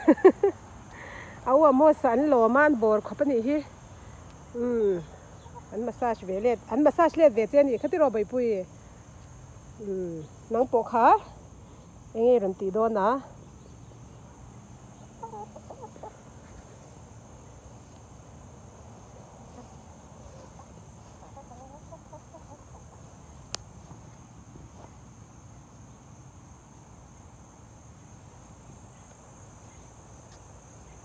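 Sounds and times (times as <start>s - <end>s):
chickens clucking softly: 15.0s - 16.7s, 19.4s - 23.7s.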